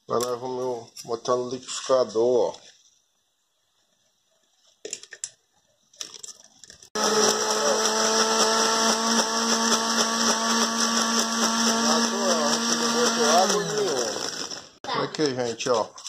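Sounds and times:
blender running: 7.0s - 14.8s.

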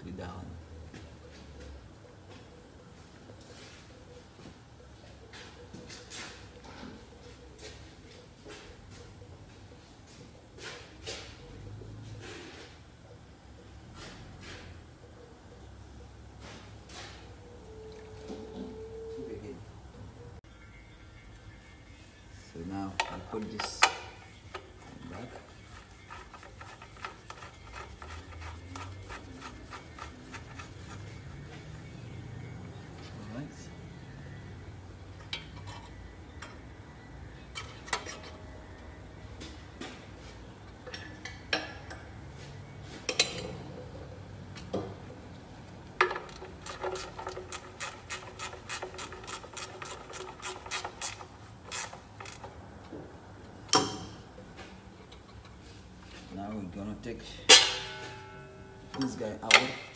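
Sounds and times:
low steady hum: 0.0s - 59.9s
ratchet wrench clicking: 46.0s - 52.5s.

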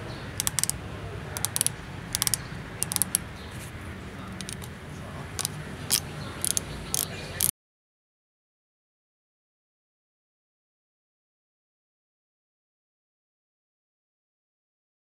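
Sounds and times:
sight knob clicking: 0.4s - 0.8s, 1.4s - 3.2s, 4.4s - 4.7s, 5.4s - 7.5s.

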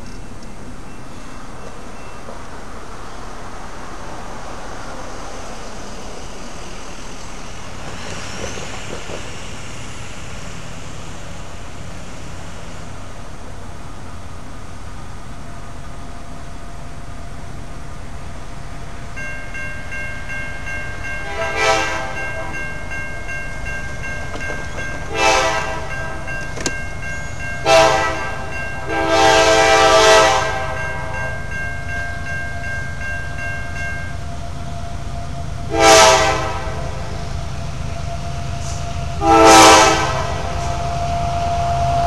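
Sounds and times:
crossing bell ringing: 0.0s - 2.4s, 19.0s - 36.2s
locomotive horn blasts: 21.2s - 22.9s, 25.0s - 26.6s, 27.6s - 31.4s, 34.2s - 37.2s, 37.9s - 42.0s.

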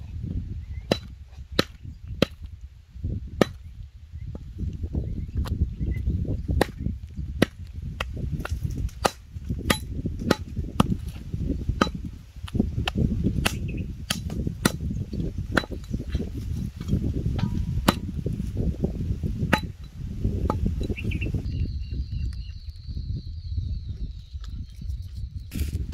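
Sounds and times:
steady low rumble: 0.0s - 25.9s
chopping strikes: 7.4s - 11.2s, 11.8s - 14.9s, 16.9s - 18.2s.

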